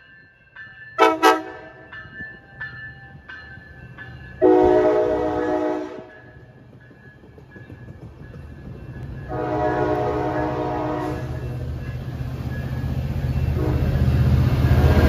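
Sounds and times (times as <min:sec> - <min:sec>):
diesel locomotive engine: 0:00.0 - 0:15.0
train cars rolling on rails: 0:00.0 - 0:15.0
train horn blast: 0:01.0 - 0:01.9, 0:04.4 - 0:06.1, 0:09.3 - 0:11.6, 0:13.5 - 0:14.1, 0:14.7 - 0:15.0.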